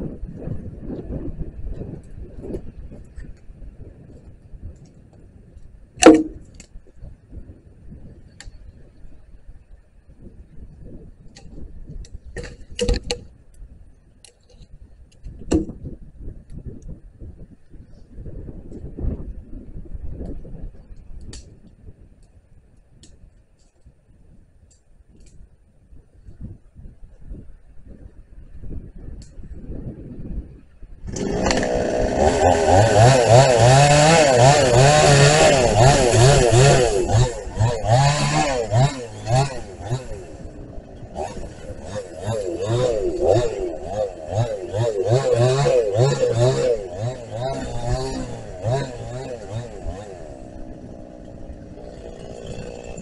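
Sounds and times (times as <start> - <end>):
wood knocking: 6.0 - 6.6
chainsaw cutting wood: 6.0 - 6.7, 12.2 - 13.3, 31.0 - 53.0.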